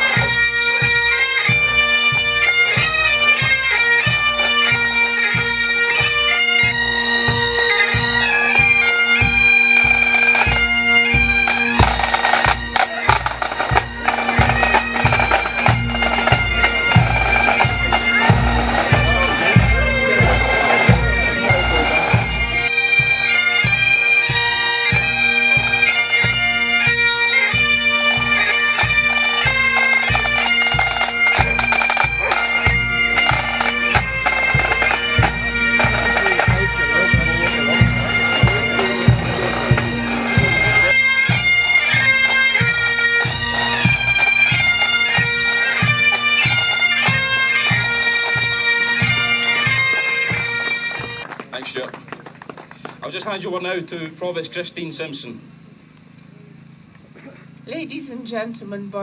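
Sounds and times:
bagpipe melody: 0.0 - 52.0
marching drum beat: 0.0 - 52.4
bagpipe drones: 0.0 - 59.0.

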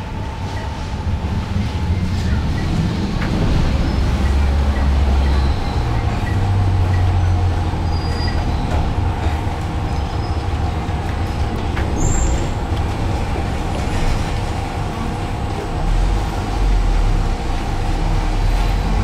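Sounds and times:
bus low rumble: 0.0 - 19.0.

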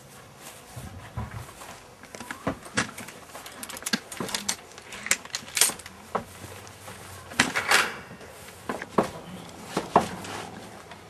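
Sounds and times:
hard objects clicking and rattling: 2.0 - 6.3.

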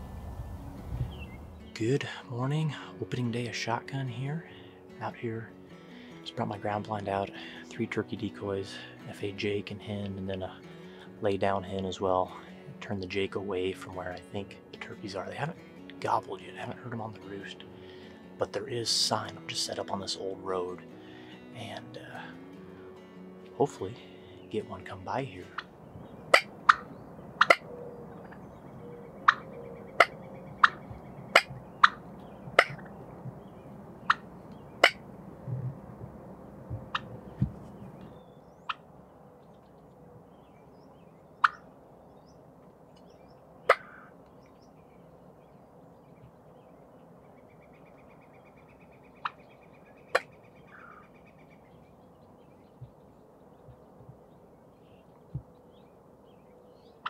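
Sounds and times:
wild turkeys clucking: 25.5 - 32.0, 32.6 - 33.0, 34.0 - 35.0, 36.9 - 37.5, 41.4 - 41.7, 43.7 - 44.1, 48.2 - 51.5.

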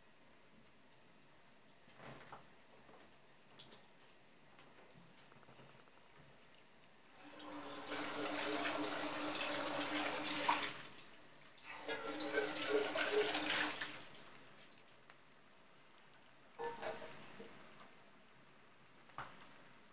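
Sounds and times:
kitchen tap running: 7.1 - 14.8.

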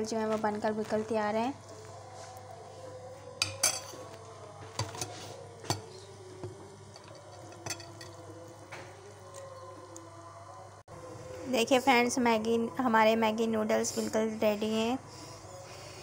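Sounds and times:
metal spoon clinking on pot: 3.4 - 4.0, 7.0 - 8.2.

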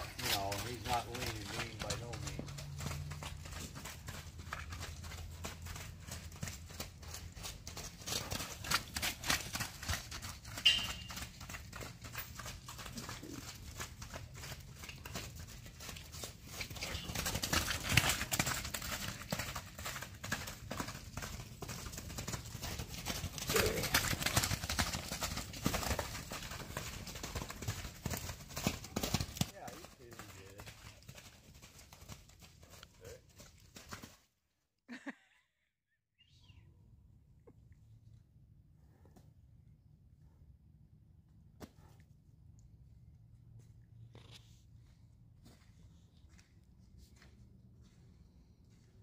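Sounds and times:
horse hoofbeats on muddy dirt: 0.0 - 34.3.

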